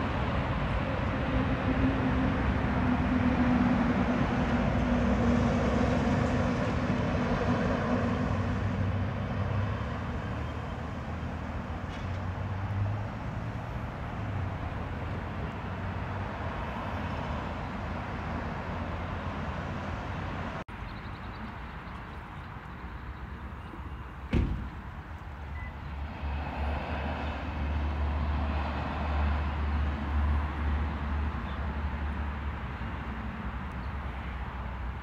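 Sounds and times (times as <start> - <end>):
sharp knock: 24.3 - 24.8.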